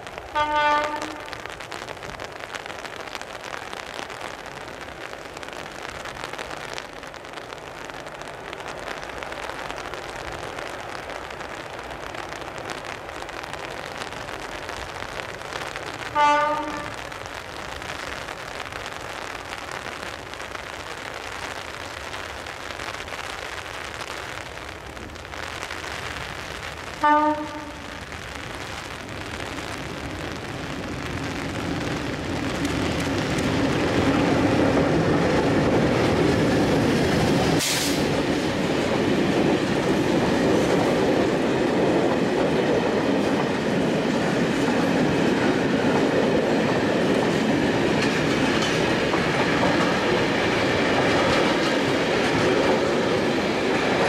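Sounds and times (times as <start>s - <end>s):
steady hiss: 0.0s - 54.0s
locomotive horn blasts: 0.4s - 1.4s, 16.2s - 16.9s, 27.0s - 27.8s.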